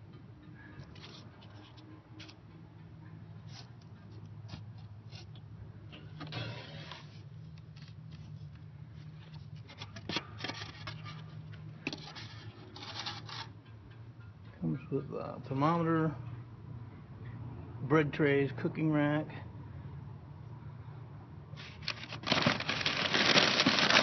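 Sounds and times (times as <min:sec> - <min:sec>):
cardboard and foam scraping: 0:21.6 - 0:24.0.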